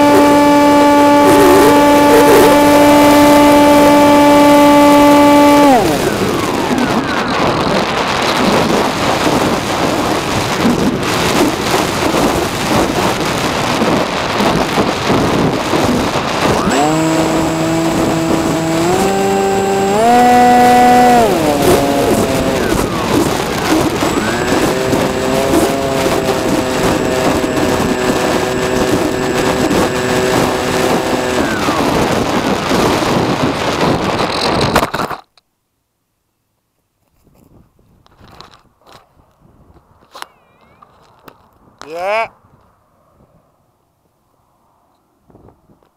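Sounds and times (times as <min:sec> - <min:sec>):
motor and propeller whine: 0:00.0 - 0:34.4
wind buffeting camera: 0:00.0 - 0:35.3, 0:37.1 - 0:43.6, 0:44.8 - 0:45.9.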